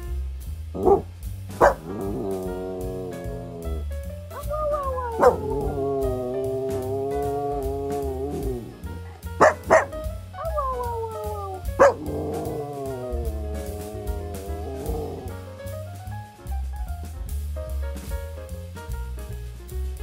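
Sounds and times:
background music with steady beat: 0.0s - 20.0s
dog howling: 0.8s - 1.0s, 1.6s - 15.3s
dog yipping: 0.8s - 2.4s, 4.4s - 8.8s, 9.4s - 15.3s.

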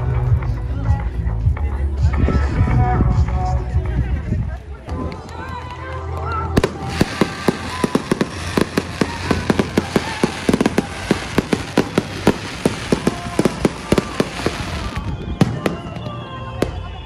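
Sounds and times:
fireworks bangs and pops: 6.6s - 17.0s.

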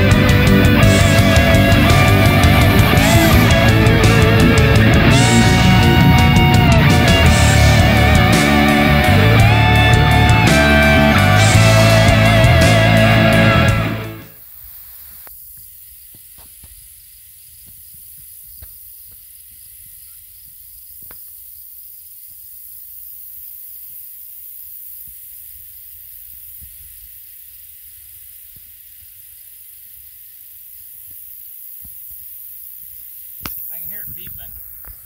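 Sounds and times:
high-pitched pulsing tone: 0.0s - 14.4s
outdoor hiss: 0.0s - 35.0s.

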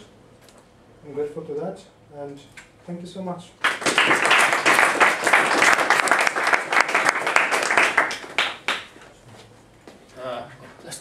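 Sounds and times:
audience applauding: 3.6s - 8.9s.

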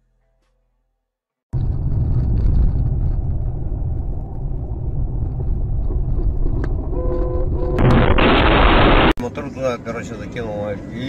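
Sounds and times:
car engine and road rumble: 1.6s - 11.0s
burst of harsh noise: 7.7s - 9.2s.

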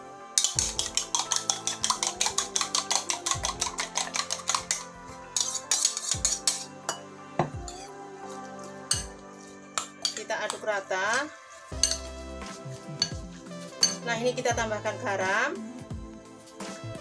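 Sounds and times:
metal utensil clinking in bowl: 0.4s - 7.9s, 8.9s - 9.2s, 9.8s - 10.6s, 11.8s - 12.1s, 13.8s - 14.1s.

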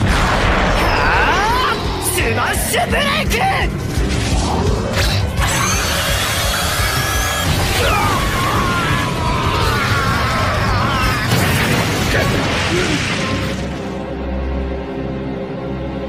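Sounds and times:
energy blast explosion: 0.0s - 1.5s, 8.5s - 13.8s
background music: 0.0s - 16.0s.

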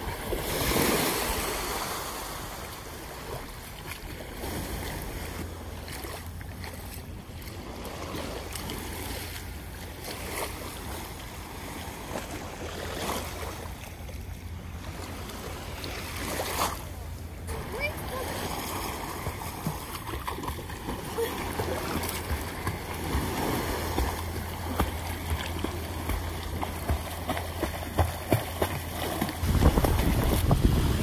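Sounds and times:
sea water: 0.0s - 31.0s
steady low rumble: 13.6s - 31.0s
wind noise: 29.4s - 31.0s.

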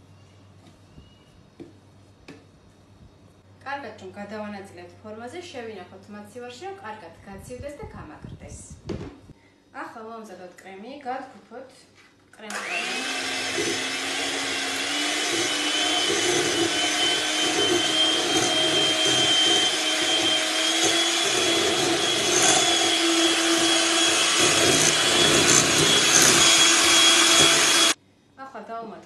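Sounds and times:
electric hand mixer whisking: 12.5s - 28.0s.

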